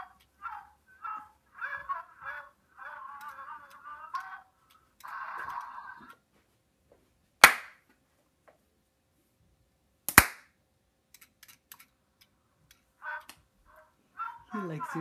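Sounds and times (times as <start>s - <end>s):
sharp hand claps: 7.4s - 7.8s, 10.1s - 10.5s.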